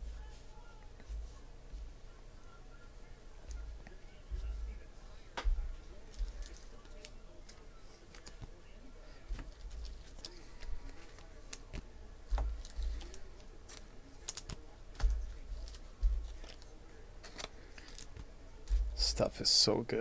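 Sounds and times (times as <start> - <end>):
trading cards clicking and slapping: 6.1 - 8.5, 9.3 - 19.0.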